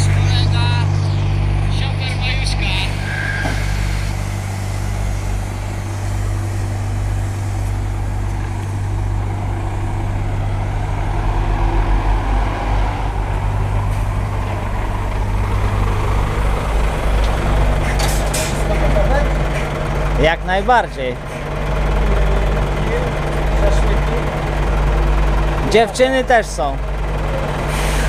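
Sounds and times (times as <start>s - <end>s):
truck diesel engine droning: 0.0s - 28.0s.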